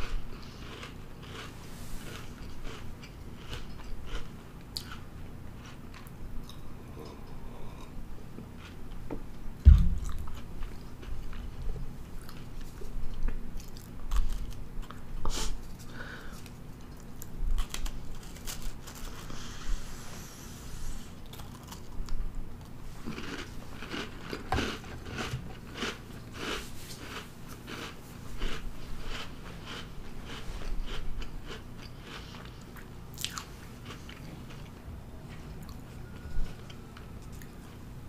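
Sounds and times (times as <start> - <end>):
person chewing a crunchy cookie: 0.0 - 19.6, 21.1 - 37.8
low thump: 9.6 - 10.3.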